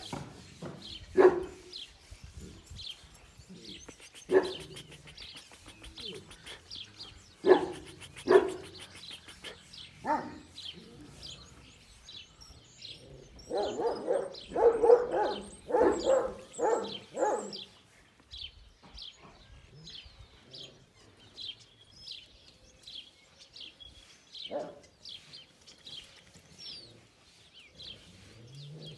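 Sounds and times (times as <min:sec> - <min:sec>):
small birds chirping: 0:00.0 - 0:28.9
dogs barking: 0:01.1 - 0:01.7, 0:04.2 - 0:05.3, 0:07.4 - 0:11.1, 0:13.3 - 0:17.7, 0:24.5 - 0:24.9.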